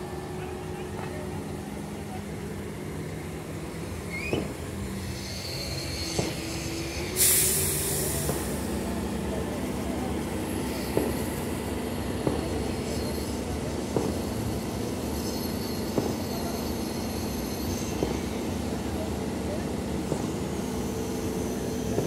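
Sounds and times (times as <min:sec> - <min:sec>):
diesel engine running: 0:00.0 - 0:22.0
loud hiss: 0:04.8 - 0:09.2.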